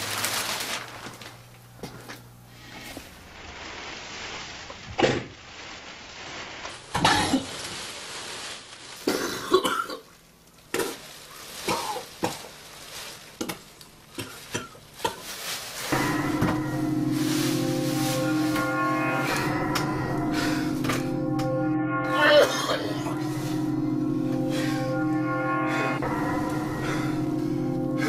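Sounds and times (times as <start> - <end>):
man coughing and choking: 9.1 - 10.0, 22.3 - 23.0
low music drone: 15.9 - 28.0.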